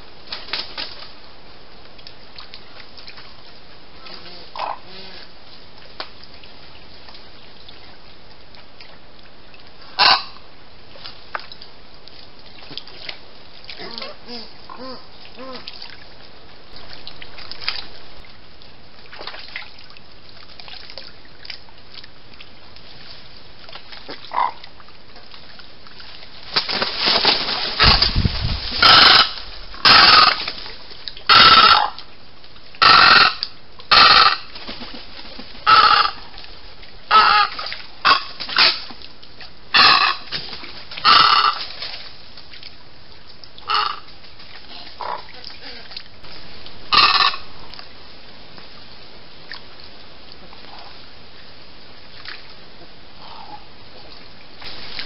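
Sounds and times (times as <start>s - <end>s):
wading birds calling: 27.8s - 30.5s, 31.3s - 32.0s, 32.8s - 34.9s, 35.6s - 36.3s, 39.7s - 40.3s, 41.0s - 41.6s, 46.9s - 47.7s.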